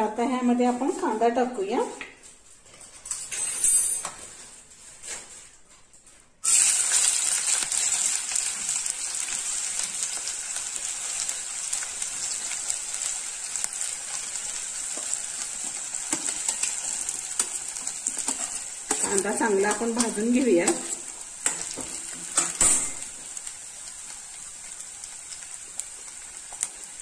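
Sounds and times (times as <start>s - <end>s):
onion sizzling in oil: 6.4s - 27.0s.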